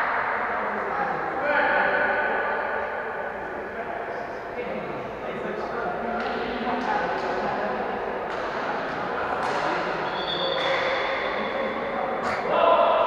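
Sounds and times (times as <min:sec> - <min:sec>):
sneakers squeaking on court: 0:10.0 - 0:10.8.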